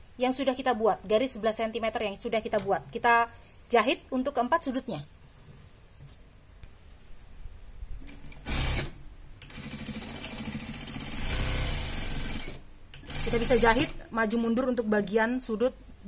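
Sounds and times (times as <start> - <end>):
electric sewing machine stitching: 8.3 - 14.0.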